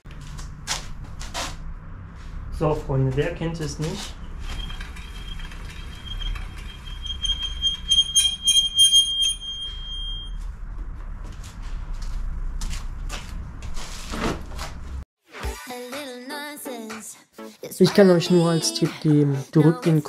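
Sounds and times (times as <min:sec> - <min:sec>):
bike disc brake squealing: 0:03.9 - 0:10.4.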